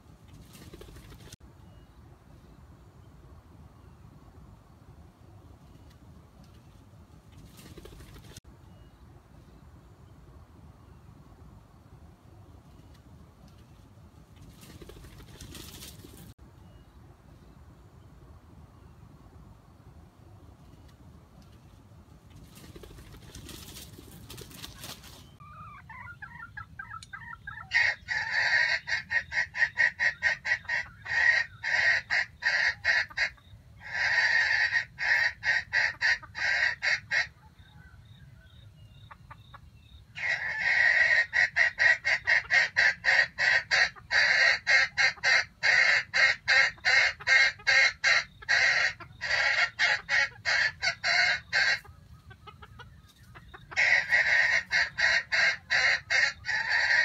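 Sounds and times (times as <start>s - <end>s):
chicken clucking: 22.4s - 38.2s, 38.8s - 57.0s.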